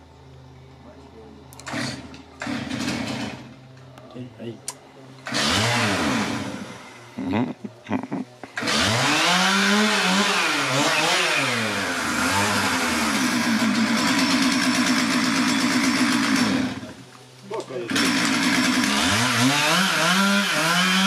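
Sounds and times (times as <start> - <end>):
chainsaw sawing into trunk: 1.6 - 3.5, 5.2 - 6.8, 8.5 - 17.0, 17.7 - 21.0
chainsaw revving: 1.6 - 3.6, 5.2 - 7.3, 8.5 - 17.0, 17.7 - 21.0.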